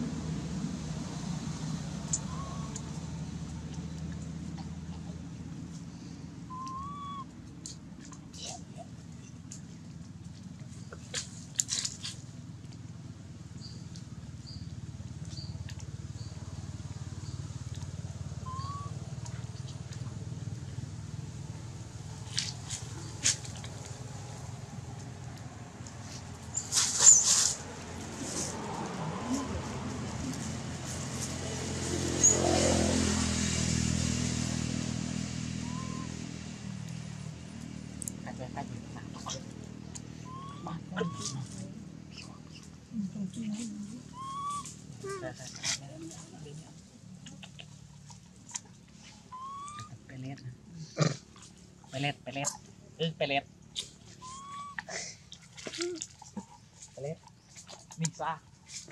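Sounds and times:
engine running: 0.0s - 58.9s
rising whistle: 6.5s - 7.3s, 35.6s - 36.2s, 49.3s - 49.8s, 54.2s - 54.8s
dry leaves crackling: 22.0s - 32.1s.

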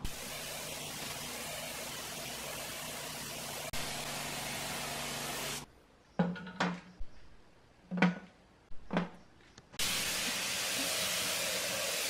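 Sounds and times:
spray gun hissing: 0.0s - 5.6s, 9.8s - 12.0s.

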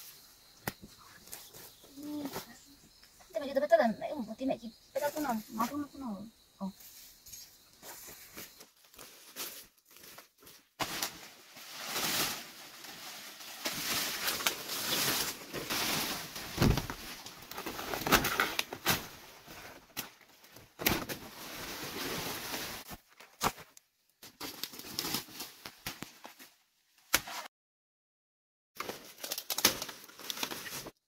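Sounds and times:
dry leaves rustling and crackling: 8.0s - 19.3s.

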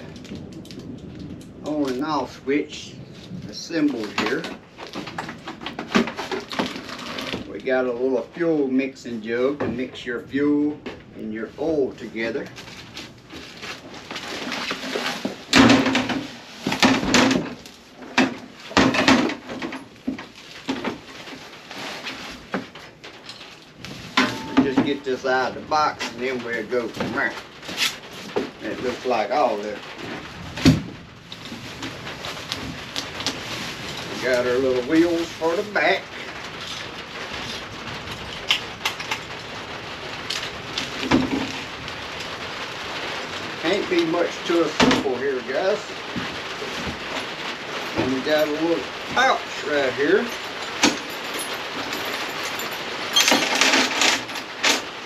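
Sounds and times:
rain hiss: 0.0s - 55.0s
parts handled in cardboard box: 12.4s - 25.4s, 26.0s - 39.4s.

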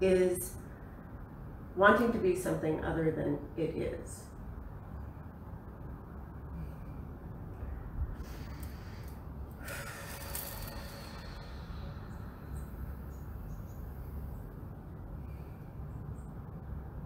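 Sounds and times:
low rumble: 4.2s - 17.0s.

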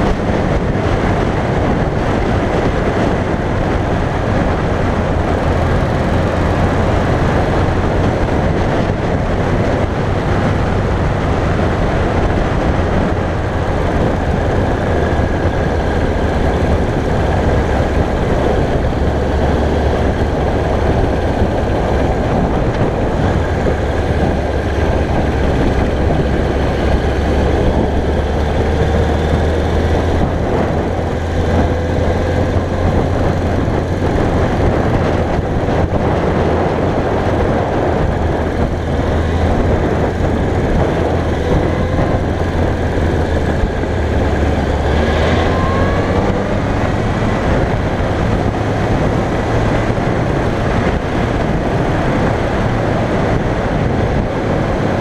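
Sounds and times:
motorcycle engine cruising: 0.0s - 55.0s
wind rushing over microphone: 0.0s - 55.0s.

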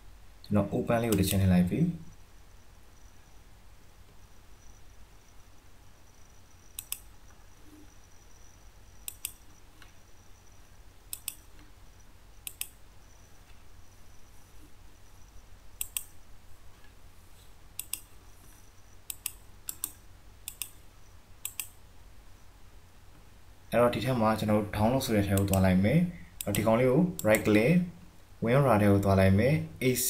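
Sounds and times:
faint low hum: 0.0s - 30.0s
computer mouse clicking: 6.7s - 7.4s, 9.0s - 10.0s, 11.1s - 11.7s, 12.4s - 12.8s, 15.8s - 16.2s, 17.8s - 20.8s, 21.4s - 21.8s, 25.3s - 25.7s, 26.4s - 27.6s.

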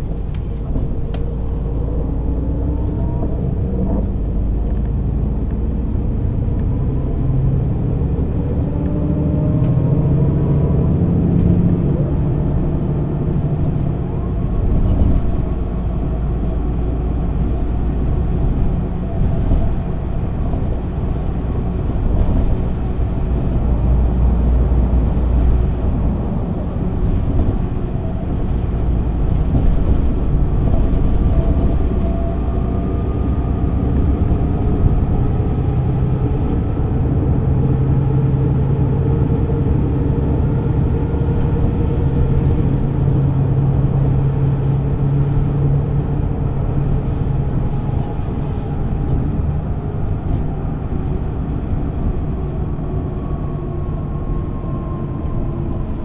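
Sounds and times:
bus engine rumbling: 0.0s - 56.0s.

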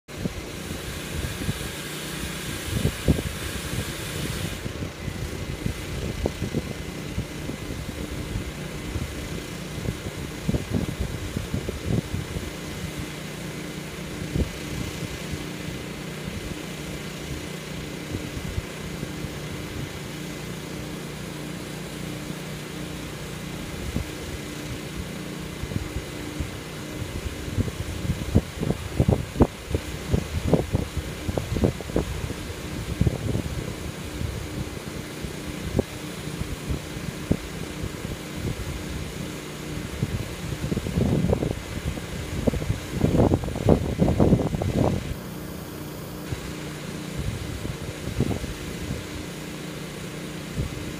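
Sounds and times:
wind gusting on microphone: 0.1s - 20.8s, 23.0s - 50.9s
cooling fan humming: 0.1s - 50.9s
high hiss: 0.3s - 9.9s.

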